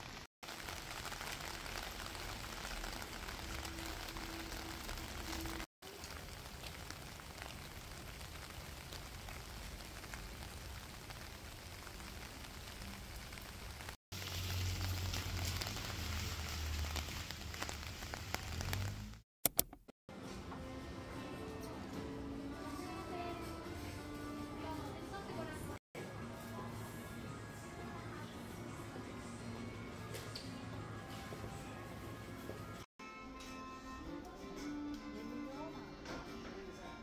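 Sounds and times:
rain on wet pavement: 0.0 - 19.2.

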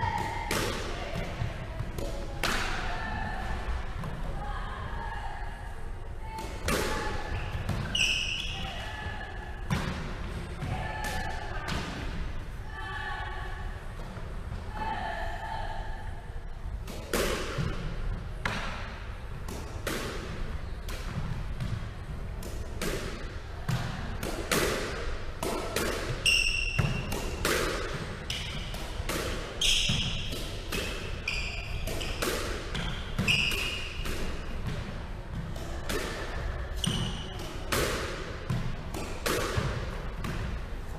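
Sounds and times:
squash ball hitting rackets and walls: 0.0 - 4.4, 6.3 - 12.2, 16.8 - 40.9
sneakers squeaking on hardwood floor: 7.3 - 8.8, 26.2 - 27.1, 29.6 - 30.4, 31.2 - 34.0.

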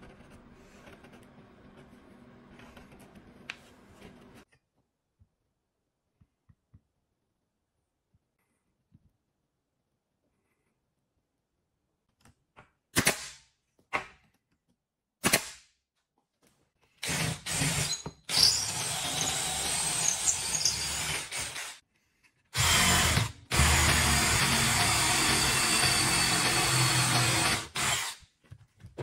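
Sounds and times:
cordless drill boring into wood: 17.0 - 21.8, 22.6 - 28.2.

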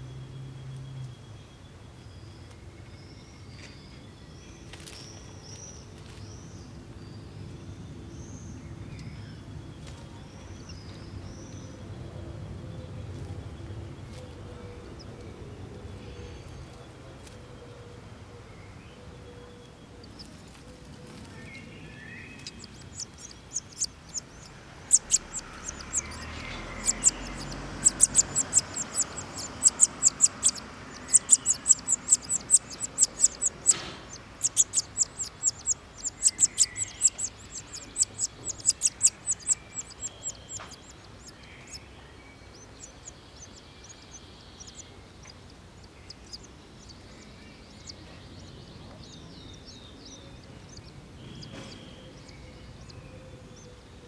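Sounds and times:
faint bird chirps: 18.4 - 53.8
nestlings begging with high cheeps: 22.4 - 41.9, 42.6 - 48.0.

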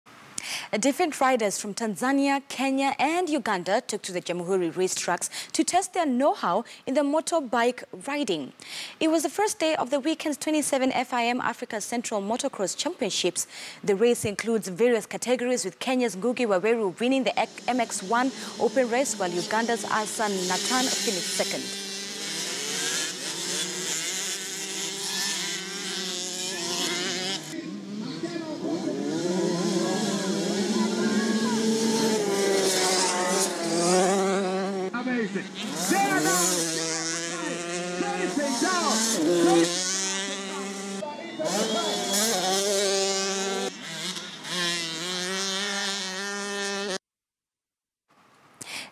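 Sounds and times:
dirt bike engines revving: 16.1 - 47.0.

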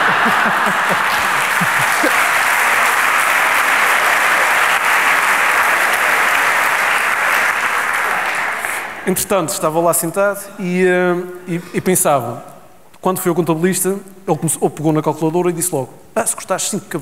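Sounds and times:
voices: 0.0 - 2.4
audience applauding: 0.0 - 9.1.

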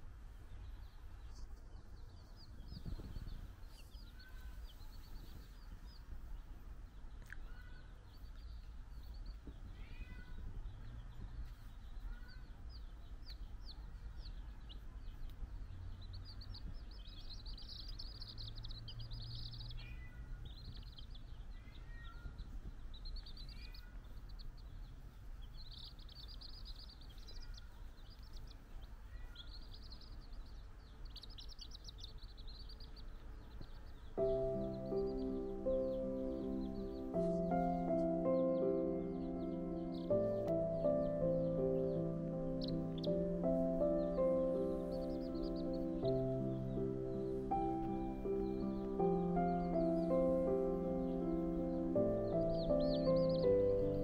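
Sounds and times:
chicks peeping: 0.0 - 54.0
music: 34.2 - 54.0.

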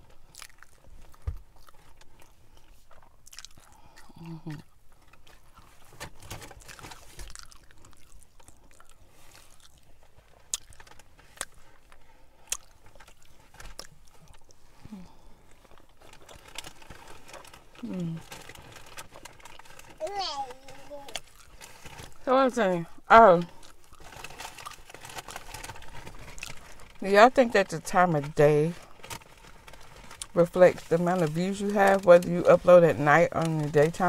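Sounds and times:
chewing with lip smacks: 0.2 - 14.6, 21.1 - 22.1.

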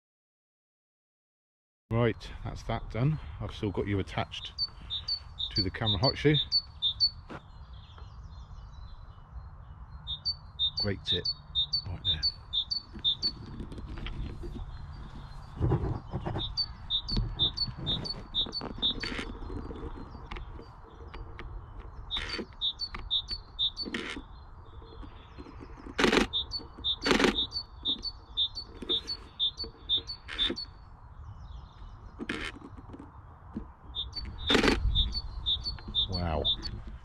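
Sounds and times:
small songbird singing: 2.7 - 37.0
sharp clicks: 25.4 - 30.7, 34.0 - 36.9.

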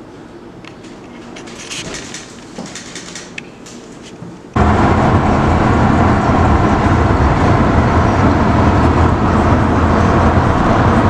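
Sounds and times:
surrounding traffic: 1.2 - 11.0
car road noise rumble: 4.6 - 11.0.

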